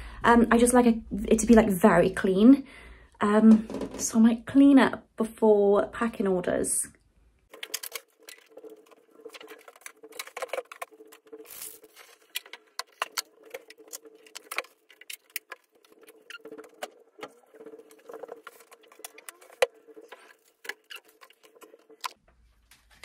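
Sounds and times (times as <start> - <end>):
objects tapping and rustling on desk: 3.5 - 4.1, 7.5 - 22.2.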